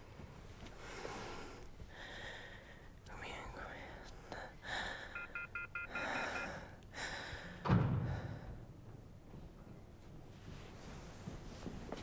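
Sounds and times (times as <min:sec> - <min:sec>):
heavy breathing: 0:00.7 - 0:03.0, 0:03.8 - 0:08.8
phone keypad beeping: 0:05.1 - 0:06.6
dull thump: 0:07.6 - 0:08.4.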